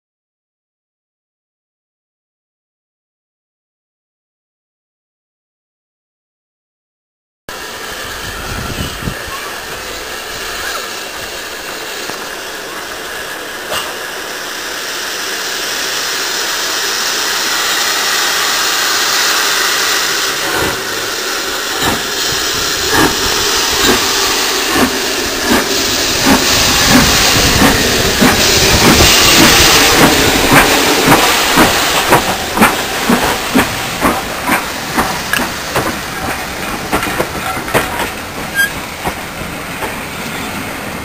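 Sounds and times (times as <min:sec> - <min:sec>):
steam locomotive hissing: 0:07.5 - 0:41.0
locomotive exhaust beats: 0:17.0 - 0:40.4.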